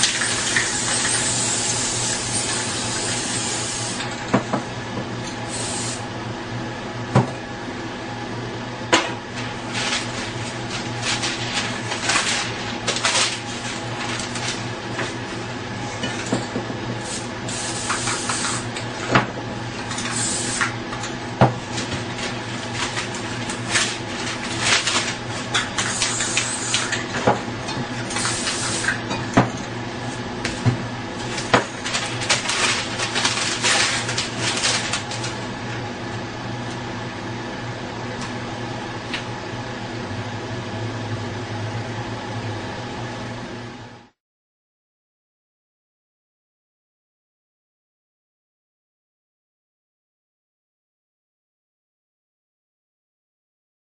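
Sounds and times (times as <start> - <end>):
spray paint cans hissing: 0.0 - 4.0, 17.1 - 18.6, 20.1 - 20.6, 26.0 - 26.9, 28.1 - 28.9
steady hum: 0.0 - 43.5
cans and paper clicking and knocking: 31.2 - 35.4.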